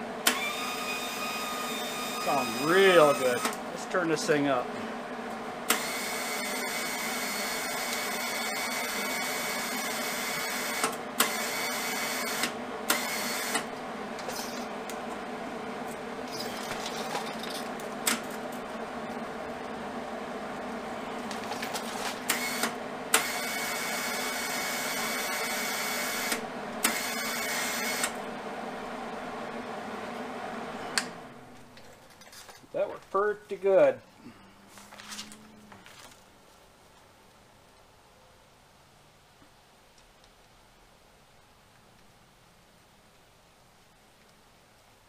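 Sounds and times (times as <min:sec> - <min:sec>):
steady machine hum: 0:00.0 - 0:36.8
welder wire-feed motor whining: 0:00.2 - 0:15.2, 0:20.9 - 0:28.9.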